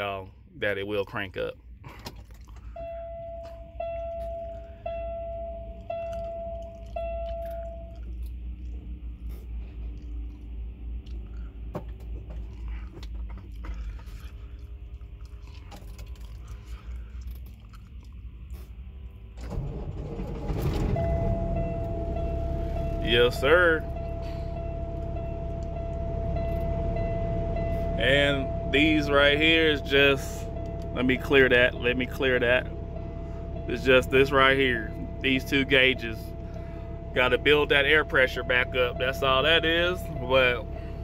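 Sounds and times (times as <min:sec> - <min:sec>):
diesel engine cranking and running: 0:00.0 - 0:41.0
dashboard warning chime beeps: 0:02.6 - 0:08.2, 0:20.4 - 0:41.0
steady warning tone: 0:02.6 - 0:11.7, 0:19.4 - 0:41.0.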